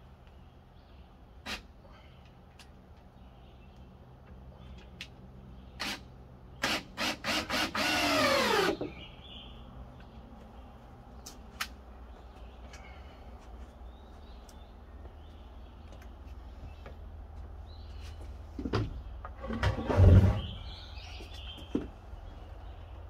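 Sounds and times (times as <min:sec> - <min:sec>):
cordless drill driving a screw: 0:06.6 - 0:08.8.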